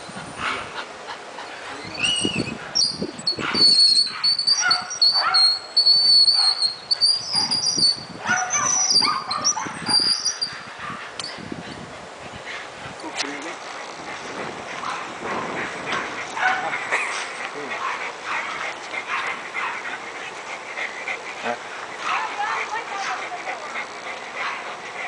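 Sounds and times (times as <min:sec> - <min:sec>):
dog high-pitched squeals: 0:01.6 - 0:11.4
dog whining and yipping: 0:01.8 - 0:10.6.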